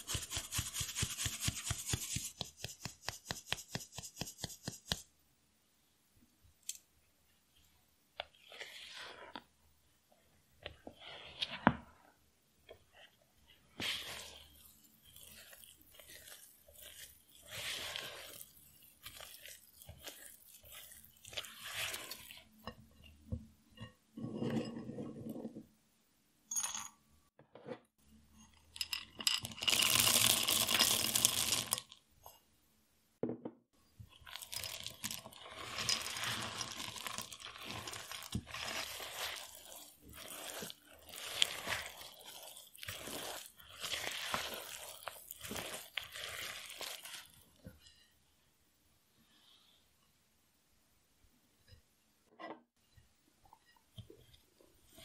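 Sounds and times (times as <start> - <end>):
spatula scraping dough in bowl: 0.0 - 5.0, 8.2 - 9.5, 12.8 - 25.6, 35.0 - 47.8.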